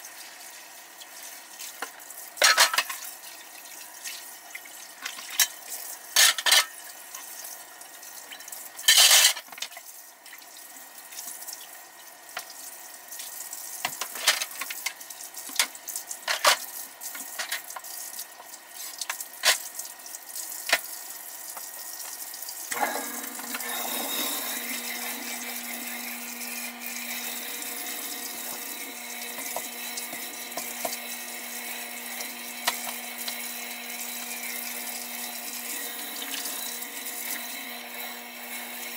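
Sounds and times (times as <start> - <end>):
faucet water running into sink: 9.6 - 38.9.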